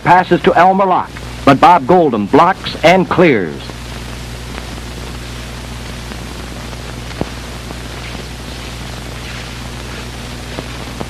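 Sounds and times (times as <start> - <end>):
film soundtrack hiss and hum: 0.0 - 11.0.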